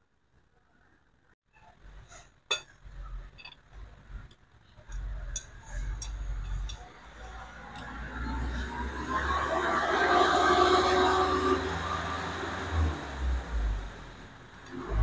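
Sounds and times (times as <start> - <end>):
metal tools ticking and clinking: 2.5 - 7.9.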